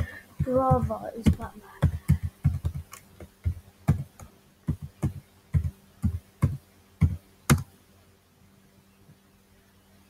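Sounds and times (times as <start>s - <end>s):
keyboard keystrokes: 1.2s - 7.7s.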